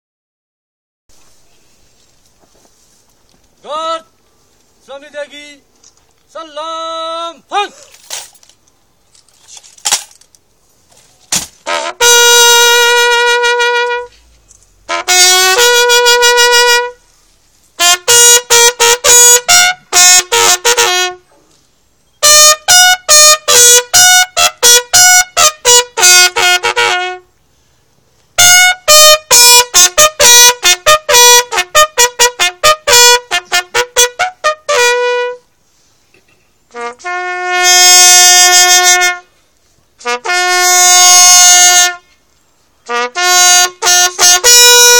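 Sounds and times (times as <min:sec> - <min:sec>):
bugle call: 0:11.6 - 0:14.3, 0:14.9 - 0:17.0, 0:17.8 - 0:21.3, 0:22.2 - 0:27.3, 0:28.4 - 0:35.5, 0:36.2 - 0:39.4, 0:40.0 - 0:42.2, 0:42.8 - 0:44.9.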